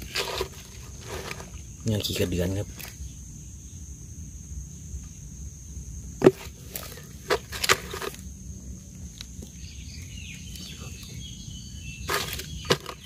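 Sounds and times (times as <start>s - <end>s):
digging knocks in soil: 6.2s - 8.2s, 12.0s - 13.0s.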